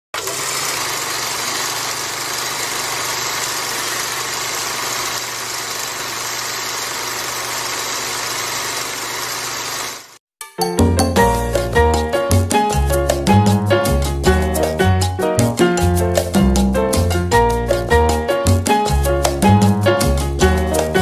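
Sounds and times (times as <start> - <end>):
film projector whirring hiss: 0.2 - 10.2.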